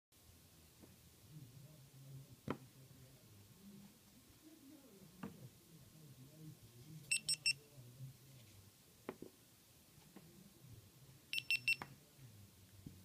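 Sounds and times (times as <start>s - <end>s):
quick high beeps: 7.1s - 7.6s, 11.3s - 11.8s.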